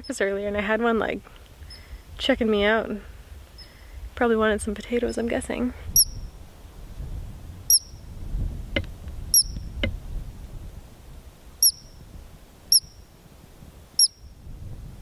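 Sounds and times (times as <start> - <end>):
ground squirrel chirping: 5.9 - 6.3, 7.7 - 8.0, 9.3 - 9.8, 11.6 - 12.0, 12.7 - 13.0, 14.0 - 14.3.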